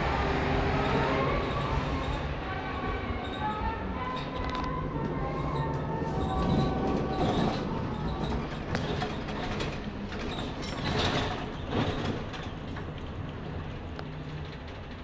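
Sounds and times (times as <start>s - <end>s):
bus diesel engine running: 0.0s - 15.0s
road noise: 0.0s - 15.0s
clicks and rattles from bus body: 4.2s - 15.0s.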